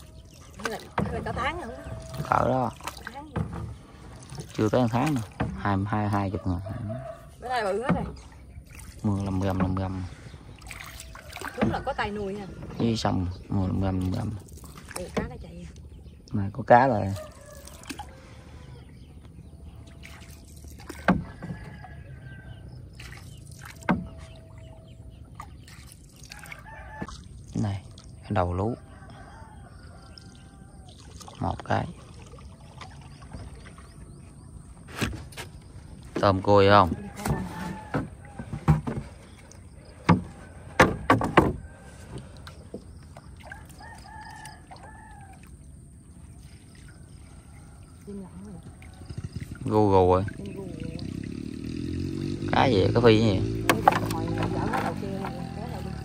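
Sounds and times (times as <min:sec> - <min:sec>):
boat pushed through water: 0:00.0 - 0:56.0
rooster crowing: 0:06.3 - 0:07.4, 0:17.2 - 0:18.4, 0:21.2 - 0:22.8, 0:26.3 - 0:27.1, 0:28.8 - 0:31.0, 0:37.0 - 0:38.8, 0:43.5 - 0:46.0.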